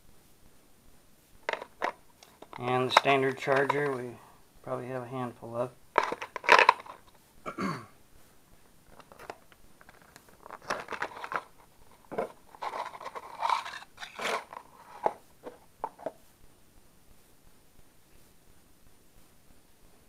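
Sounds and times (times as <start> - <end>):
plastic packaging crackling: 1.5 - 4.1, 6.0 - 7.1, 8.9 - 15.6.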